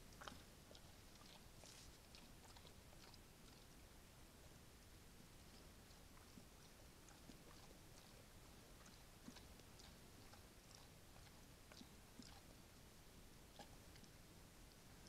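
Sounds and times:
bear chewing grain: 0.0s - 4.6s, 5.3s - 12.7s
microphone hiss: 0.0s - 15.0s.

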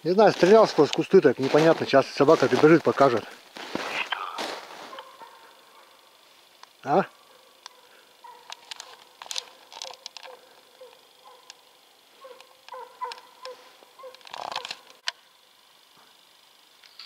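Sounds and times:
footsteps crunching in snow: 0.0s - 6.5s
hound yelping in the distance: 7.7s - 8.6s, 12.2s - 14.3s.

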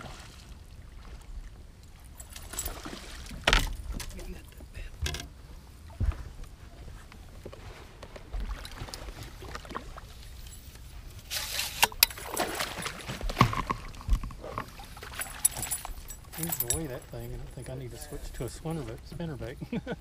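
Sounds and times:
rod and reel knocks: 3.4s - 4.2s, 5.0s - 5.4s, 13.1s - 17.0s
fish splashing at surface: 11.3s - 14.1s.

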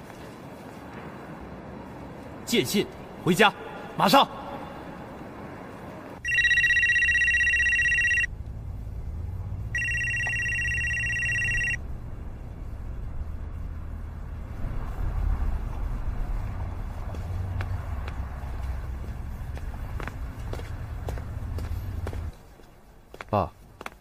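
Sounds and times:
telephone ringing: 6.2s - 8.3s, 9.8s - 11.8s.

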